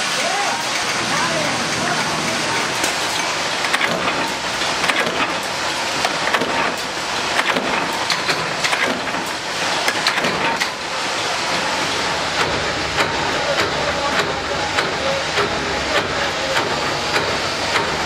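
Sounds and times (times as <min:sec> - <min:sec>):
machinery running: 0:00.0 - 0:18.0
metallic clicks and clanks: 0:00.1 - 0:10.8.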